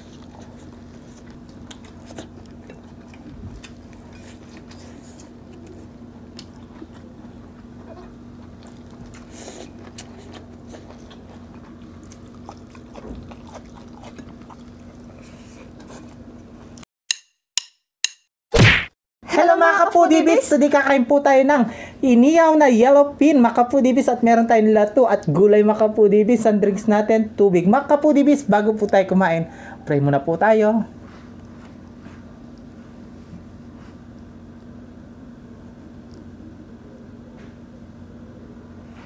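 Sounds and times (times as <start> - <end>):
people biting and chewing: 0.0 - 16.4
faint steady hum: 19.3 - 39.0.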